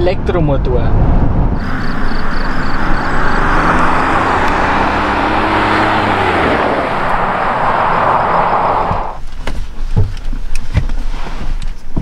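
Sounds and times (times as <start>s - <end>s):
tyre and road noise: 1.4s - 12.0s
faint engine note: 1.6s - 9.2s.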